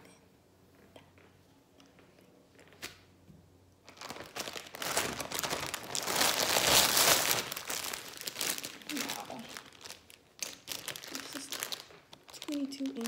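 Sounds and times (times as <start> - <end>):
plastic packaging crinkling: 3.8 - 13.0.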